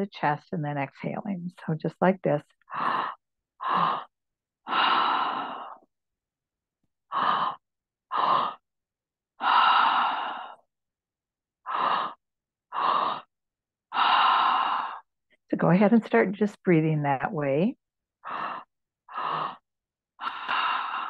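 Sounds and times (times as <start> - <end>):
woman breathing through mouth: 2.6 - 5.9, 7.1 - 8.6, 9.4 - 10.7, 11.6 - 13.3, 13.9 - 15.1, 18.2 - 19.6, 20.2 - 21.0.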